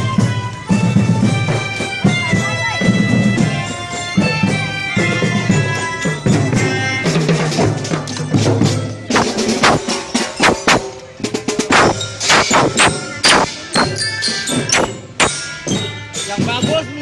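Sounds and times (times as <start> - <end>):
drums beating: 0.0 - 17.0
melodicas playing a tune: 9.3 - 17.0.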